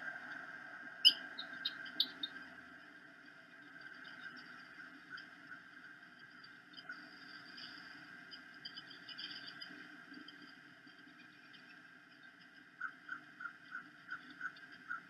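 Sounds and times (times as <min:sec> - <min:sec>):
bird chirping: 0:01.0 - 0:02.4.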